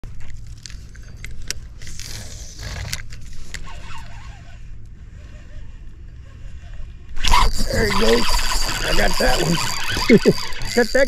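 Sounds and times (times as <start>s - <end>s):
reel whirring: 0.2s - 11.0s
fishing reel clicking: 7.2s - 11.0s.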